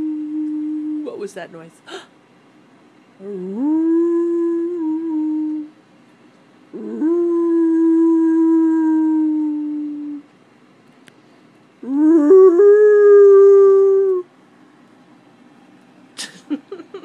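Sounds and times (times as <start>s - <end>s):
dog howling: 6.8s - 10.2s, 11.8s - 14.3s.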